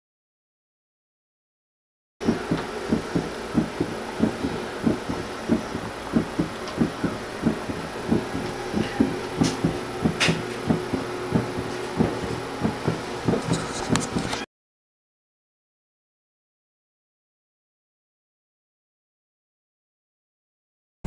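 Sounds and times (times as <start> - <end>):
heartbeat pulses: 2.2 - 14.3
steady hum: 2.2 - 14.5.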